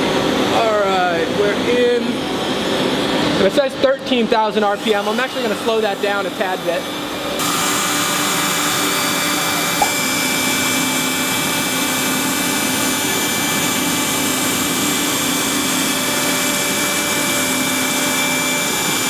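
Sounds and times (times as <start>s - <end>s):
router spindle cutting wood: 4.8s - 19.0s.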